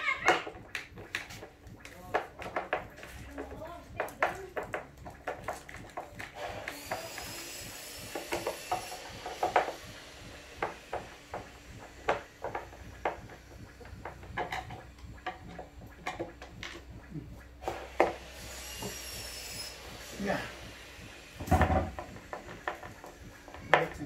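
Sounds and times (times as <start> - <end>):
tools knocking against wood: 0.2 - 7.3, 8.1 - 9.8, 10.6 - 16.9
screwdrivers turning screws in wood: 5.5 - 9.8.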